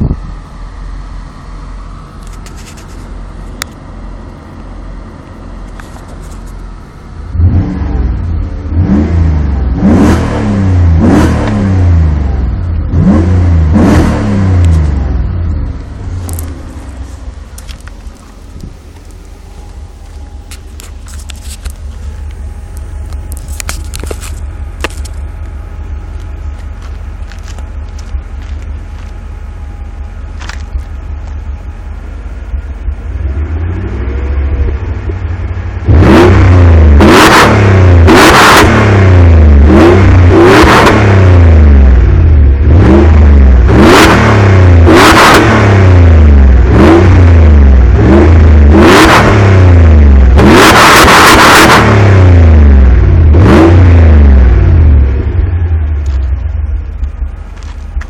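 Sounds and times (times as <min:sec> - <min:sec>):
car engine idling: 0:00.0 - 0:58.0
engine revving blips: 0:07.3 - 0:16.6, 0:32.6 - 0:58.0.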